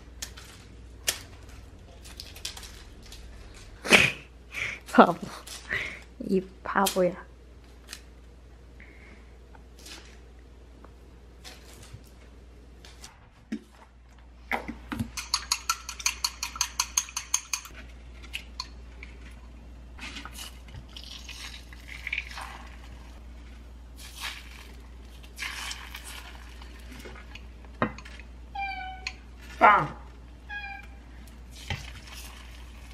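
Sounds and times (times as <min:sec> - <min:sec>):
chopsticks beating egg in bowl: 0:15.1 - 0:17.8.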